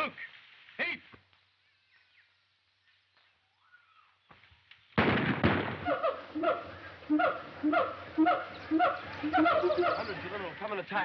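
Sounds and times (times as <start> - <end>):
apes calling: 5.9 - 10.6.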